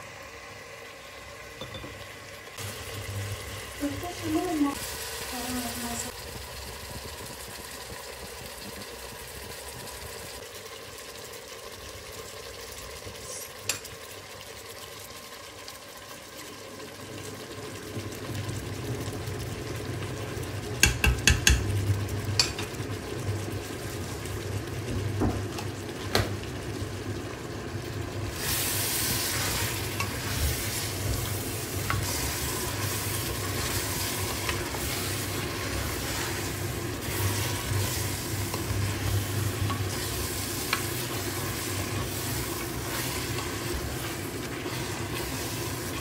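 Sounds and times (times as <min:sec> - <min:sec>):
meat and vegetables sizzling: 0:00.0 - 0:46.0
utensil knocking on pot: 0:20.8 - 0:21.7
spoon stirring food: 0:29.4 - 0:46.0.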